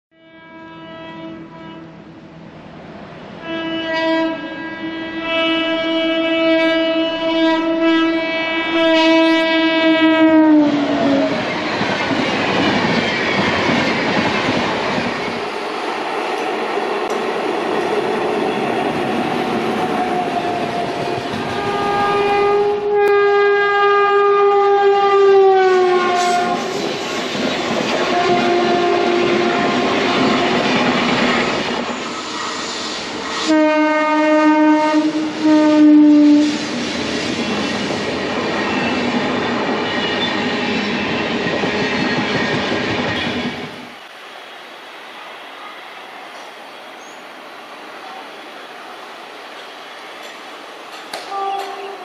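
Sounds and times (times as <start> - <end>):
train horn blast: 0.1 - 2.1, 3.4 - 11.5, 18.5 - 26.9, 28.0 - 30.7, 33.3 - 36.8, 51.2 - 52.0
train rushing past: 1.3 - 52.0.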